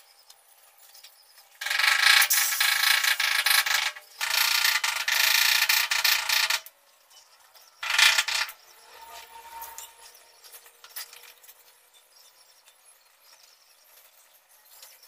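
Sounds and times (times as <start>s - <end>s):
steel tape measure rattling: 1.6s - 6.7s, 7.8s - 11.7s.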